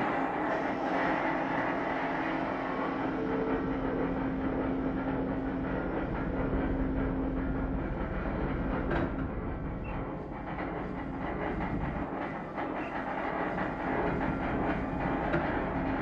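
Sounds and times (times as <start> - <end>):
held drone: 0.0 - 6.1
machinery rumble and hum: 0.0 - 16.0.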